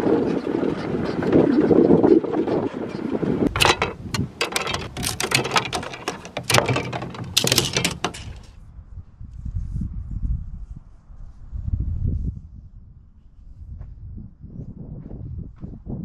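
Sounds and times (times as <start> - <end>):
bamboo stakes clacking together: 3.5 - 8.5.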